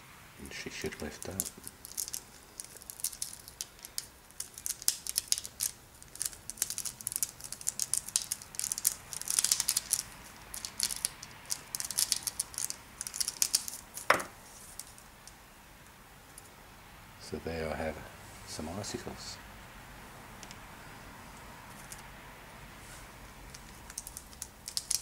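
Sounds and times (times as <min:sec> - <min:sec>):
plastic film crackling: 0:00.7 - 0:15.4, 0:23.4 - 0:25.0.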